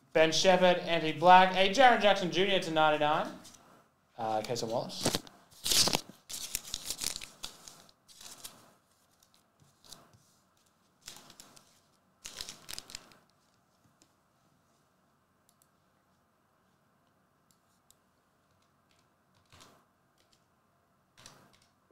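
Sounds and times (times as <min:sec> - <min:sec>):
wrapper crinkling: 0:05.0 - 0:10.0, 0:11.0 - 0:13.3
cards sliding and rustling: 0:05.0 - 0:12.9.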